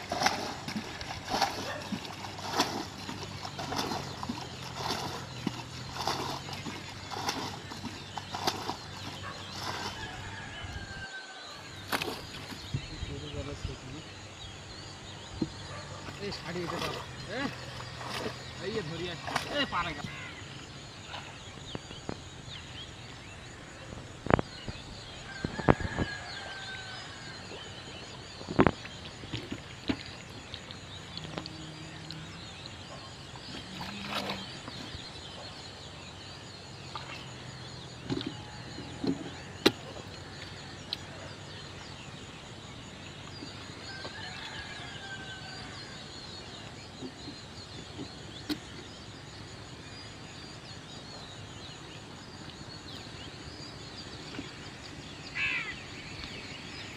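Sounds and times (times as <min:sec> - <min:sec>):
bird calls: 0:00.0 - 0:56.9.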